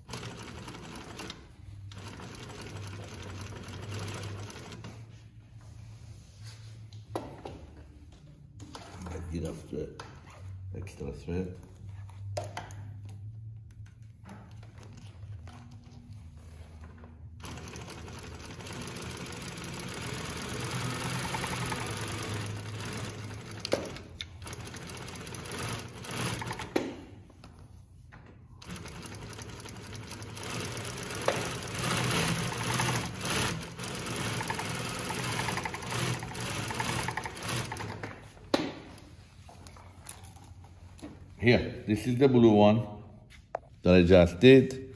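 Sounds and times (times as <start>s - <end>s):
sewing machine stitching: 0.0s - 5.0s, 16.9s - 26.9s, 28.6s - 38.2s.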